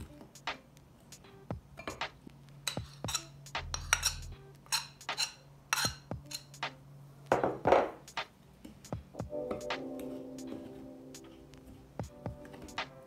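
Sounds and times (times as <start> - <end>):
metal spoon scraping glass bowl: 2.7 - 6.6.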